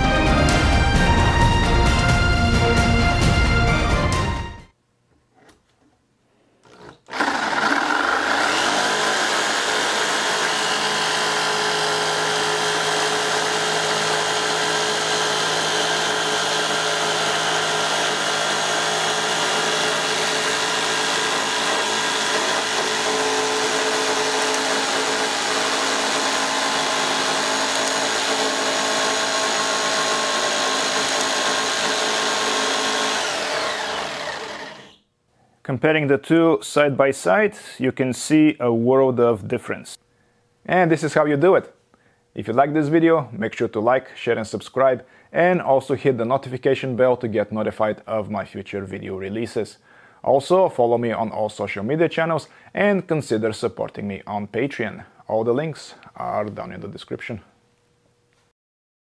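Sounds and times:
jigsaw cutting plywood: 0:06.6 - 0:35.0.

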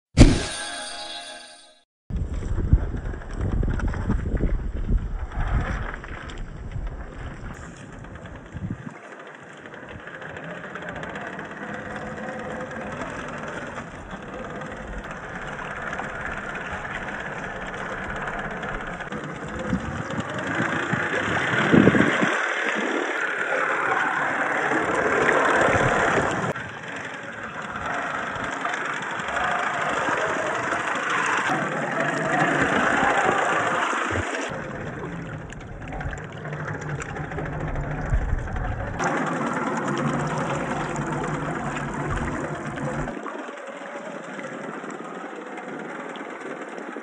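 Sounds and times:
toy car motor running: 0:09.5 - 0:34.5
water splashing: 0:12.8 - 0:46.5.

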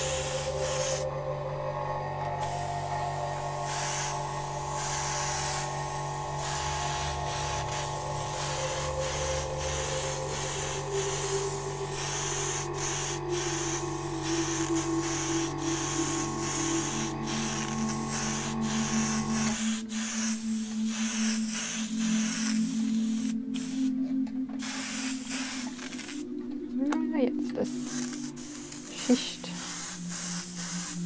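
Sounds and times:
airbrush hissing bursts: 0:00.0 - 0:01.1, 0:02.4 - 0:24.0, 0:24.6 - 0:26.2, 0:27.6 - 0:31.0
background music with held tones: 0:00.0 - 0:31.0.

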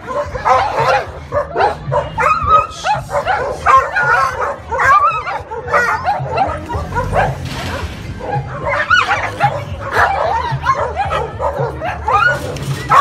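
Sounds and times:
dogs fighting: 0:00.0 - 0:13.0.

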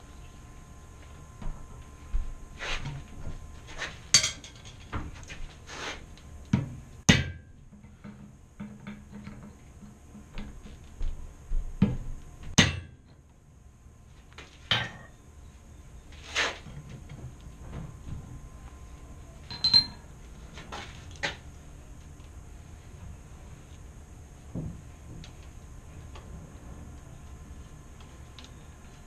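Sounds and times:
hammer striking hot steel: 0:12.6 - 0:13.1.

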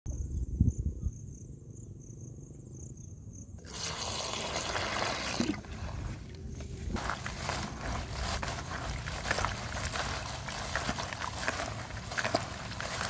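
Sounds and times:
water pouring into a basin: 0:03.6 - 0:06.1.

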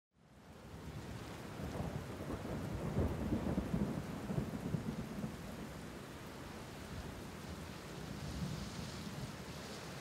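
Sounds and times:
steady rain: 0:00.2 - 0:10.0
low rolling thunder: 0:01.6 - 0:05.7.

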